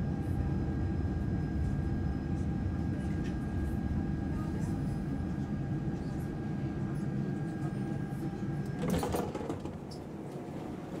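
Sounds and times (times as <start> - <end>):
subway car rumble: 0.0 - 11.0.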